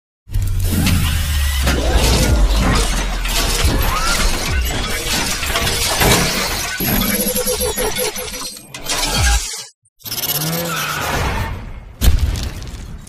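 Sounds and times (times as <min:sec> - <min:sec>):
deep bass rumble: 0:00.4 - 0:05.5
shattering crashing hits: 0:00.8 - 0:06.8.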